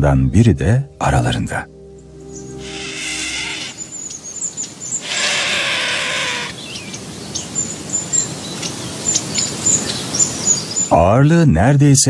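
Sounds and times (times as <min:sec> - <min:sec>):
background music: 0:00.0 - 0:06.5
steady outdoor hiss: 0:00.0 - 0:12.0
small birds chirping: 0:02.0 - 0:11.1.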